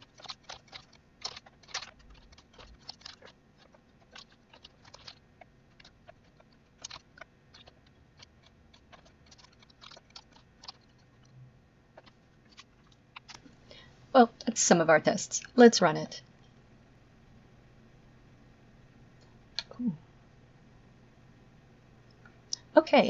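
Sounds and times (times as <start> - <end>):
keyboard and mouse clicks: 0.0 - 11.4, 12.0 - 13.5.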